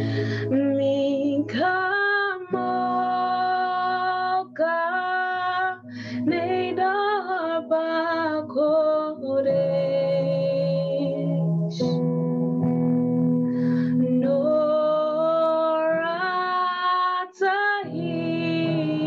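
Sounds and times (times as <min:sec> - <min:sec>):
woman singing slow song: 0:00.0 - 0:12.0, 0:13.5 - 0:19.0
sustained keyboard chords: 0:00.0 - 0:19.0.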